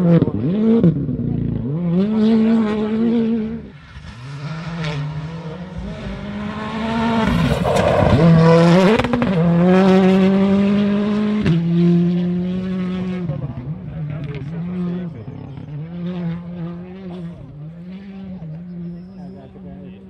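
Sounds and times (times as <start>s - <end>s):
rally car engine at high revs: 0.0s - 20.0s.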